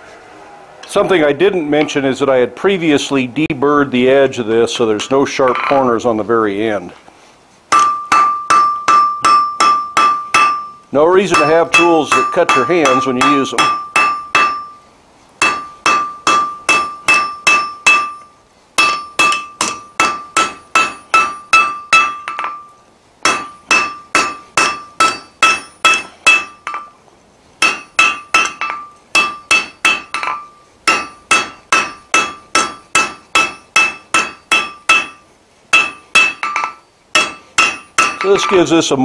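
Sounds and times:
hammer striking steel on anvil: 0:05.0 - 0:05.9, 0:07.7 - 0:14.8, 0:15.4 - 0:27.0, 0:27.6 - 0:38.7
metallic ring: 0:07.7 - 0:27.0, 0:27.6 - 0:38.7.

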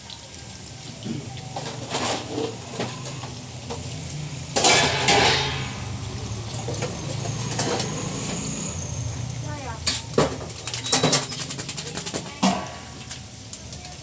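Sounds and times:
meat deep-frying in oil: 0:00.0 - 0:14.0
metal kitchenware clattering: 0:01.5 - 0:08.8, 0:09.8 - 0:13.0.

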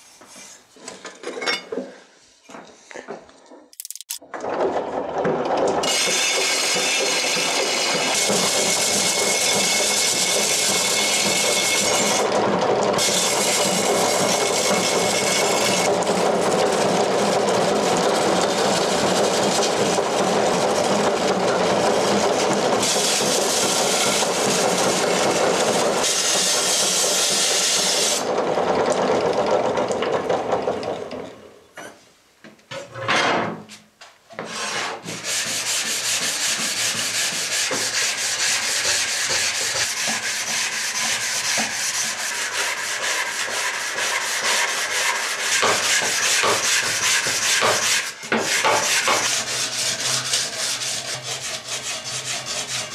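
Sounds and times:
blade grinding on abrasive drum: 0:05.8 - 0:28.3, 0:34.4 - 0:52.9
sanding block rubbing strokes: 0:22.1 - 0:28.2, 0:34.4 - 0:52.9.

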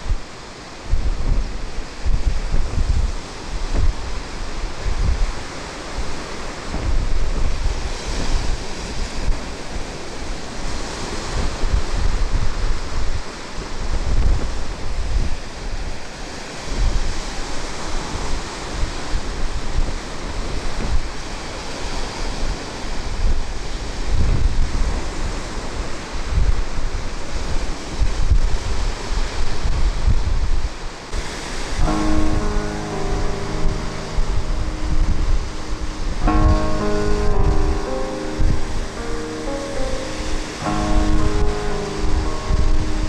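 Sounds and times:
sea waves breaking over rocks: 0:00.0 - 0:43.0
wind buffeting microphone: 0:00.0 - 0:43.0.

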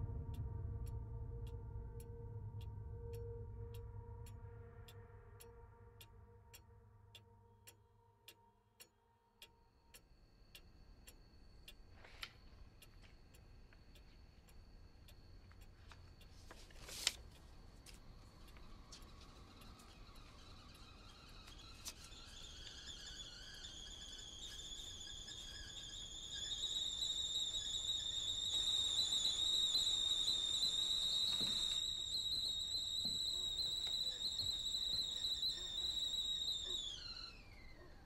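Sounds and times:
kettle whistling: 0:14.8 - 0:38.0.

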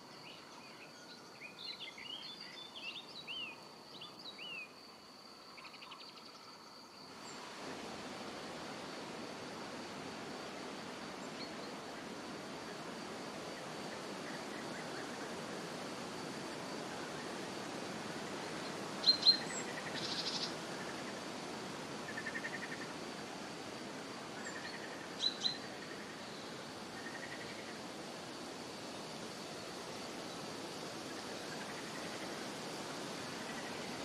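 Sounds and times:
forest brook hissing: 0:00.0 - 0:34.0.

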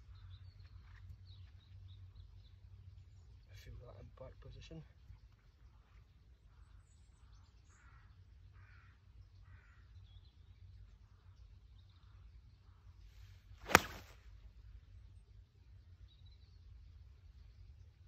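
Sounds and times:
golf club striking ball: 0:13.6 - 0:14.2
golf club swish: 0:13.6 - 0:14.2.

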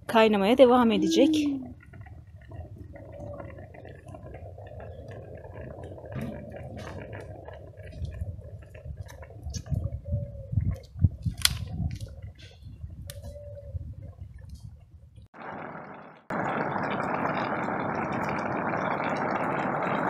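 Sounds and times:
sauce bubbling in a pan: 0:01.5 - 0:10.7, 0:15.4 - 0:20.0.

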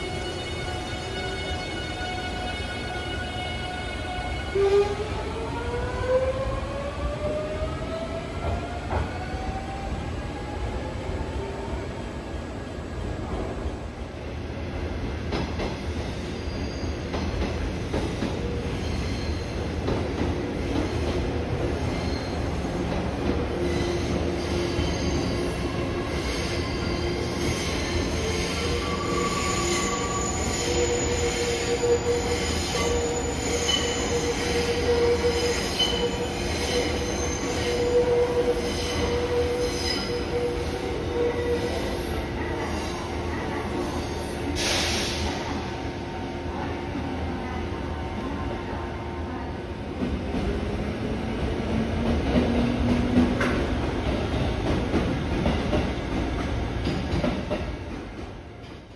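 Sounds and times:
train wheels squealing: 0:15.8 - 0:19.8, 0:20.6 - 0:22.7, 0:23.6 - 0:43.2.

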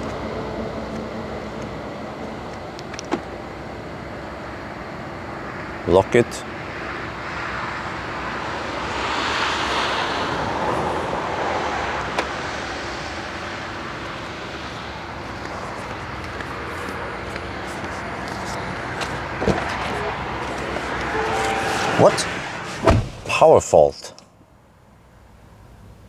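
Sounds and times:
traffic noise: 0:00.0 - 0:26.0
vehicle passing: 0:07.2 - 0:12.7, 0:18.0 - 0:23.2.

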